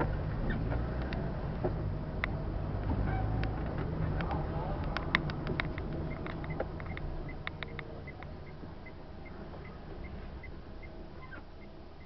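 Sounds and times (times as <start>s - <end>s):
car engine and tyres rumbling: 0.0s - 12.0s
turn signal ticking: 0.0s - 12.0s
sharp rattling clicks: 3.4s - 8.4s.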